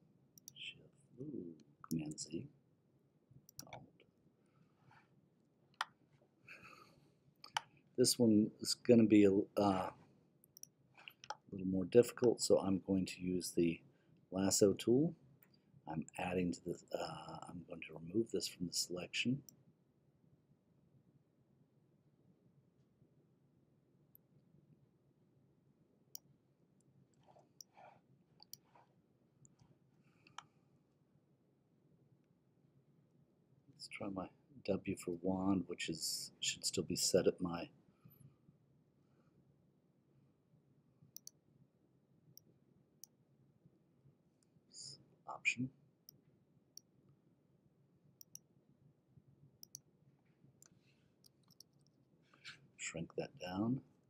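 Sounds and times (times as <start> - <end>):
low room hum: 0.0 - 54.0
computer mouse clicks: 0.4 - 0.6, 3.5 - 3.9, 10.4 - 11.4, 27.2 - 28.7, 41.2 - 41.4, 48.2 - 48.4, 49.6 - 49.8, 50.6 - 52.6.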